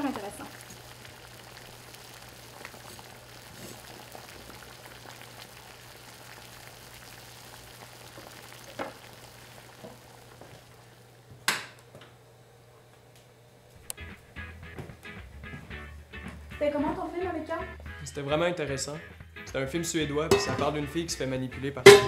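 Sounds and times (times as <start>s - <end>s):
pot sizzling and bubbling: 0.0s - 11.7s, 20.2s - 21.0s.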